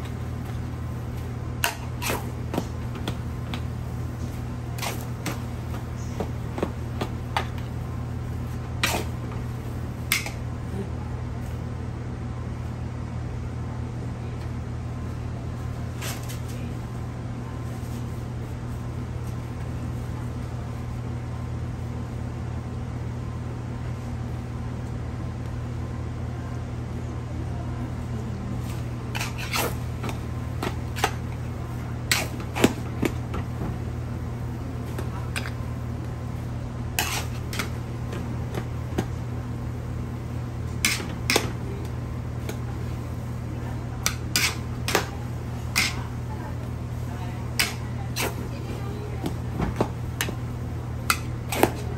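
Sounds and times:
commercial kitchen hum: 0.0 - 51.9.

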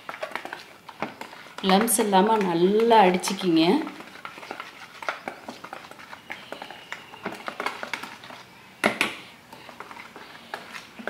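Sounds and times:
whisk clatter: 0.0 - 8.4
whisk clicking against bowl: 0.1 - 8.2.

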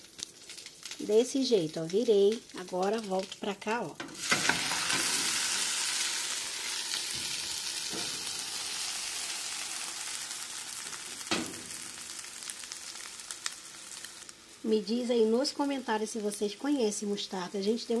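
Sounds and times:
omelette sizzling in a pan: 0.0 - 18.0.

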